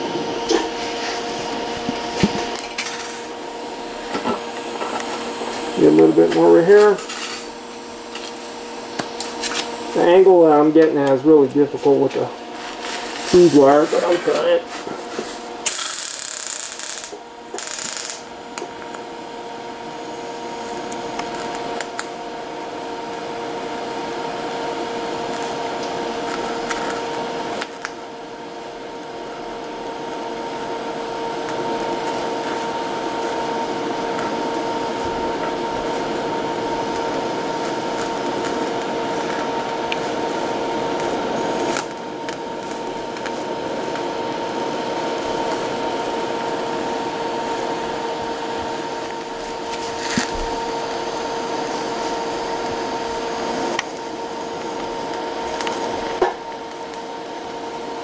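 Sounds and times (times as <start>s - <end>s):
welding arc hissing buzz: 0.0s - 58.0s.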